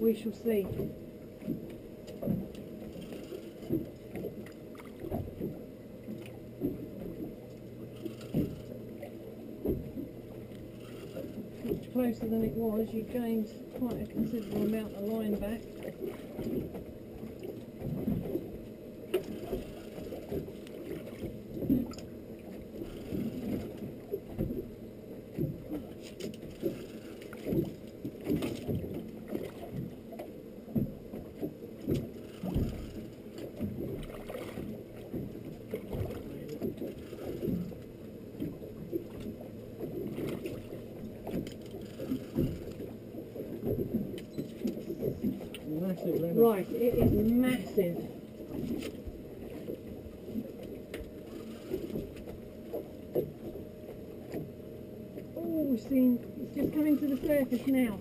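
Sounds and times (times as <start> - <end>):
water lapping against boat hull: 0.0 - 58.0.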